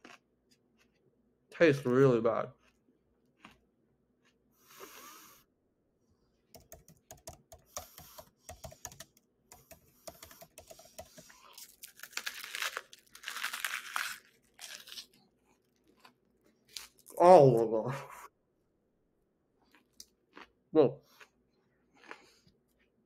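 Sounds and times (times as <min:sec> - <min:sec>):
crunchy chewing of raw onion: 0:00.0 - 0:01.1, 0:02.5 - 0:05.4, 0:09.6 - 0:17.1, 0:19.6 - 0:23.0.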